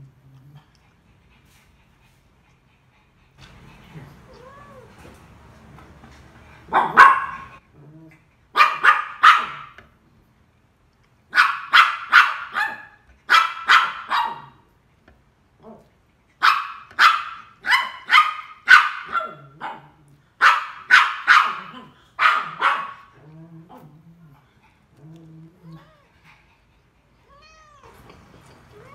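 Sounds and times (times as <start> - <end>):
dog barking: 6.7 - 7.6, 8.6 - 9.8, 11.3 - 14.6, 16.4 - 23.1.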